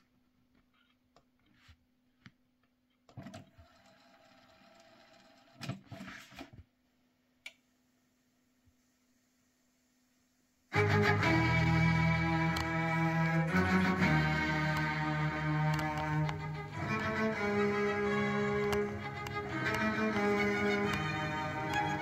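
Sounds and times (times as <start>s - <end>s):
tape motor whirring: 10.8s - 22.0s.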